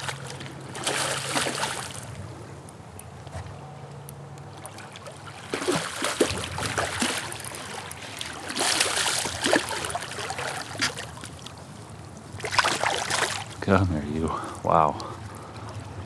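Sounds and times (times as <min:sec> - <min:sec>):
fish splashing at water surface: 0:00.0 - 0:02.1, 0:04.5 - 0:11.5, 0:12.4 - 0:13.6.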